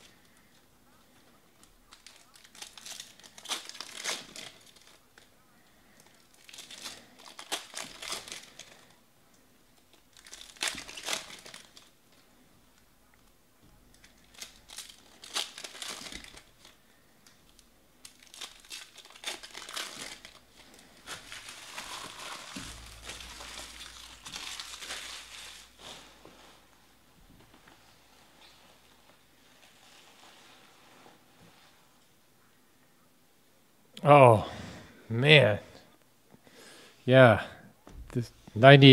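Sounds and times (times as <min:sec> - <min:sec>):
foil wrappers tearing and crinkling: 0:01.6 - 0:05.3, 0:05.9 - 0:08.9, 0:09.8 - 0:12.0, 0:13.9 - 0:16.9, 0:17.5 - 0:26.6.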